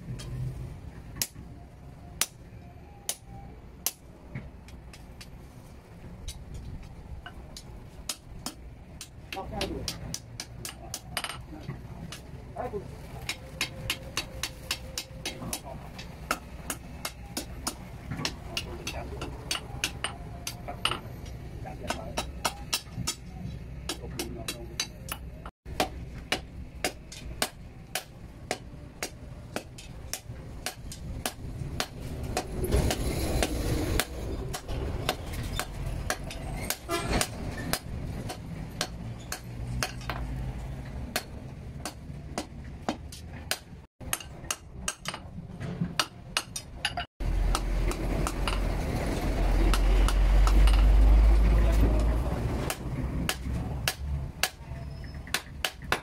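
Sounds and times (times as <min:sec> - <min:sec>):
hammer striking steel on anvil: 0:13.2 - 0:21.0, 0:21.8 - 0:23.3, 0:23.9 - 0:40.3, 0:41.1 - 0:45.3, 0:46.0 - 0:48.7.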